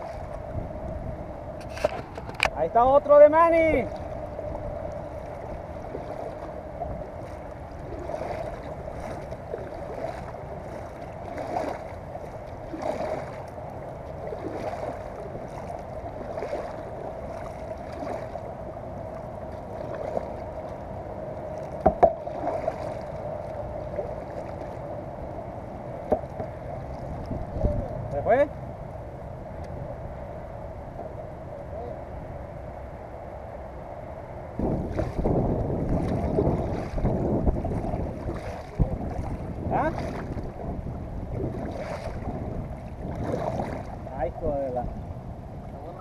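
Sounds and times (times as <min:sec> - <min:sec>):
kayak paddle splashing: 0:00.0 - 0:28.1, 0:34.6 - 0:44.3
faint steady hum: 0:00.0 - 0:46.0.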